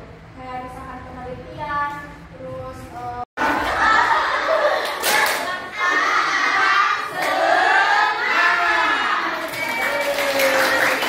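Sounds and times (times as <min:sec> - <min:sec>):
teenagers shouting and cheering: 0:03.4 - 0:11.0.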